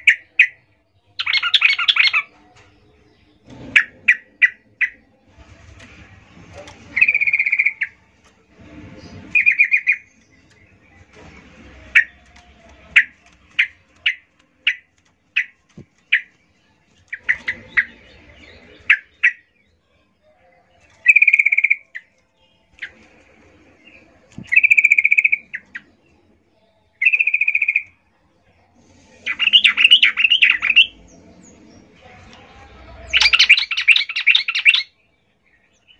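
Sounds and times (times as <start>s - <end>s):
bird harsh chattering calls: 7.0s - 8.0s, 24.5s - 25.8s.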